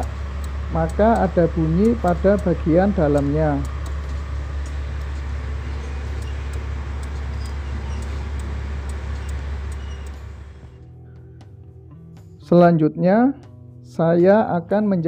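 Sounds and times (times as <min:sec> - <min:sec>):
diesel truck engine idling: 0:00.0 - 0:10.8
faint ticking: 0:00.0 - 0:11.2.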